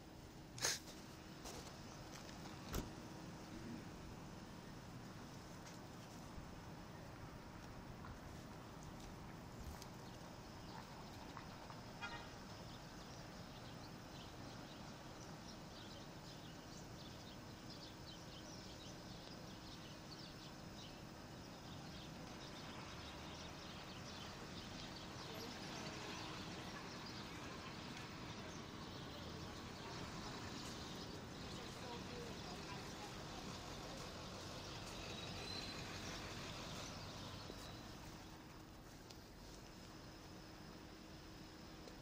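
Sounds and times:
steady low hum: 0:00.0 - 0:12.0
small birds chirping: 0:00.6 - 0:42.0.

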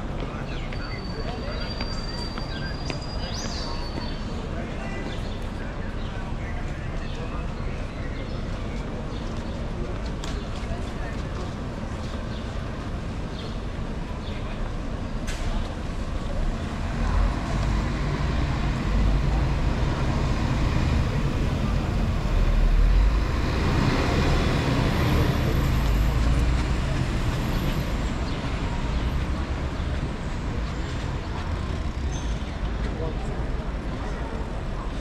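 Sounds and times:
heavy vehicle engine passing: 0:15.3 - 0:32.7.

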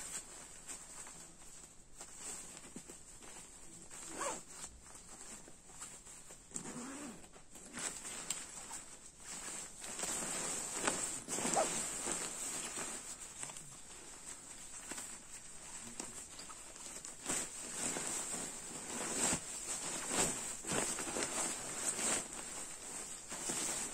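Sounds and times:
nylon fabric rustling: 0:00.0 - 0:23.9
sleeping bag zipper pulled: 0:04.1 - 0:04.4, 0:06.5 - 0:07.3, 0:11.4 - 0:11.8.

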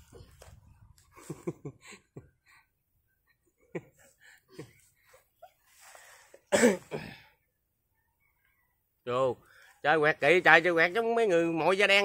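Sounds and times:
breathy chuckles: 0:01.1 - 0:02.6
laughter and giggling: 0:01.1 - 0:05.6.

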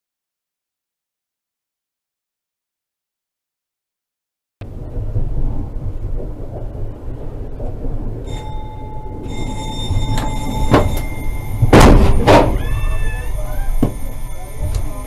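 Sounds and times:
tram rumbling on rails: 0:04.6 - 0:15.0
high steady tones: 0:08.2 - 0:15.0.

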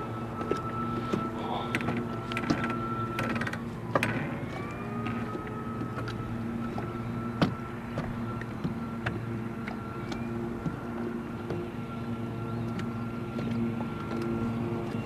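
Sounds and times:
waves slapping boat hull: 0:00.0 - 0:11.8
electric motor humming and whining: 0:00.0 - 0:15.0.

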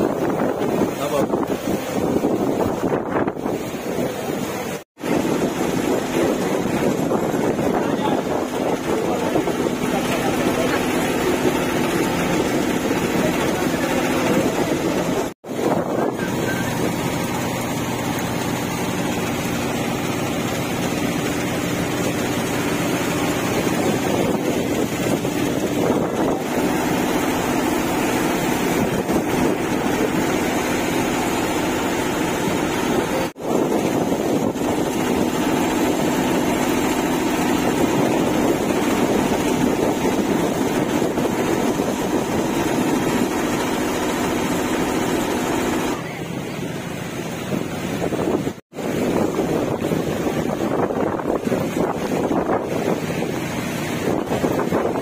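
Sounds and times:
motorcycle engine running: 0:05.3 - 0:46.1.

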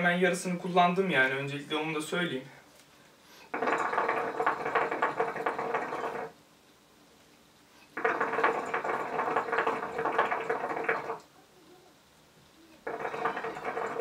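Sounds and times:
hookah water bubbling: 0:03.5 - 0:06.4, 0:07.9 - 0:11.3, 0:12.8 - 0:14.0.

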